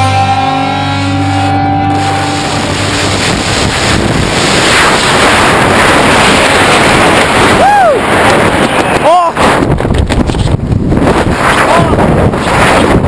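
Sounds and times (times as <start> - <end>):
wind buffeting microphone: 1.9 - 13.0
person whooping: 7.6 - 8.0.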